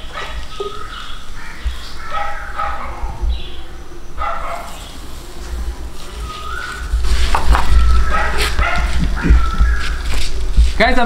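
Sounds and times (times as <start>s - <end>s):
dog barking: 0.0s - 0.7s, 2.0s - 3.3s, 4.2s - 5.0s, 7.6s - 9.8s
wind rumbling on microphone: 0.0s - 11.0s.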